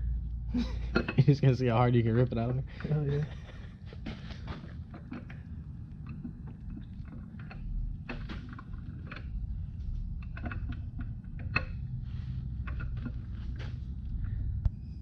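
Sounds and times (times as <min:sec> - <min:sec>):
low rumble: 0:00.0 - 0:15.0
metallic clicks and scrapes: 0:04.1 - 0:14.3.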